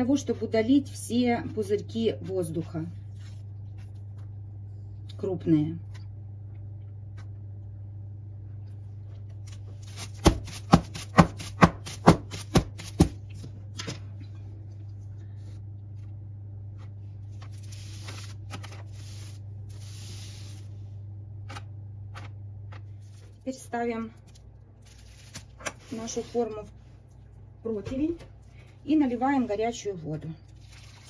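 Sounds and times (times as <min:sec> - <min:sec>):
paper and foil rustling: 0:17.2 - 0:20.7, 0:22.9 - 0:26.7.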